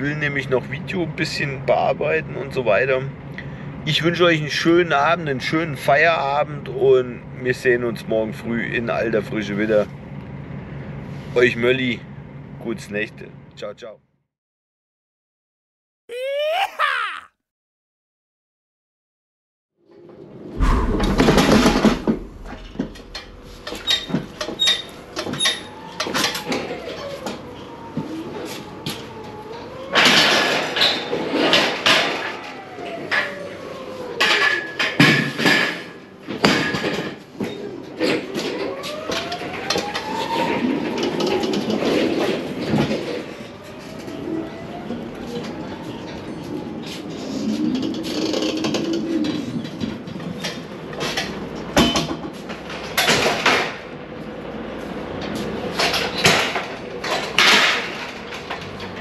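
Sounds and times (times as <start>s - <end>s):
loud knock: 20.6s - 23.3s.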